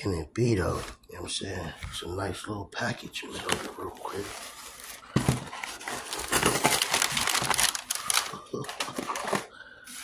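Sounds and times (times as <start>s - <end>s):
cardboard box crinkling and rustling: 3.3s - 9.5s.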